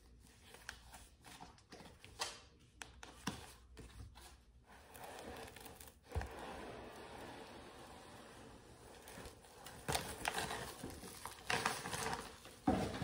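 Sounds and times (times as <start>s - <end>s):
plastic crinkling and rustling: 8.9s - 13.0s.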